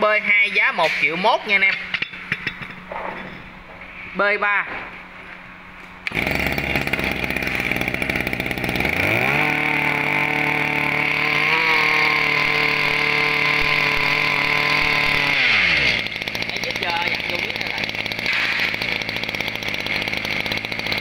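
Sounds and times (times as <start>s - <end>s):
brush cutter engine revving: 6.0s - 21.0s.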